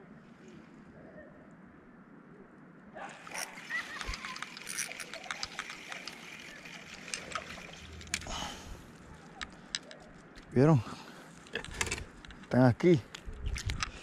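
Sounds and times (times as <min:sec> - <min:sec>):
fishing reel clicking: 0:03.2 - 0:08.4.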